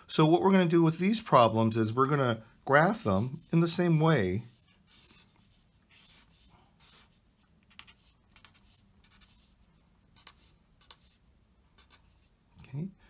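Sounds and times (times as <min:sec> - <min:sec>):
pen scratching on paper: 0:04.4 - 0:11.2.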